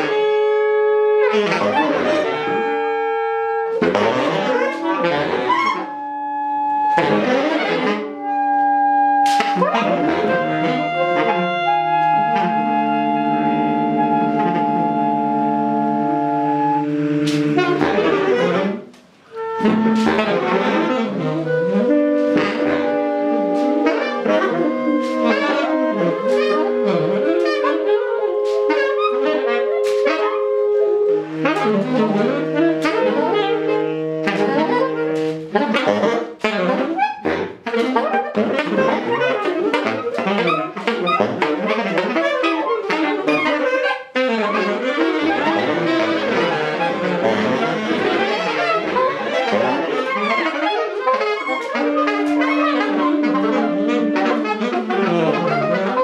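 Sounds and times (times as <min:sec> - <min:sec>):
long held wind-like notes: 0:08.1 - 0:17.2, 0:21.4 - 0:31.4.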